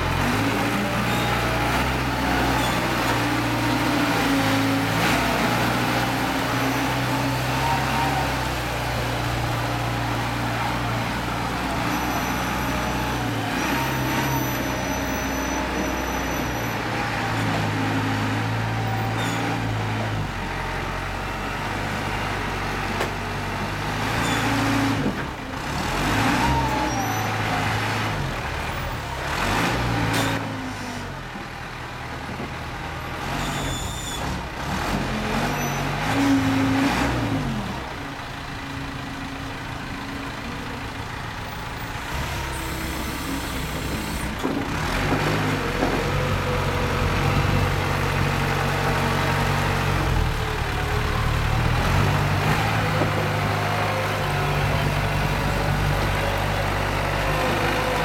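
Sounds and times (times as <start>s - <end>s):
forklift engine revving: 0.0s - 31.3s, 33.1s - 58.0s.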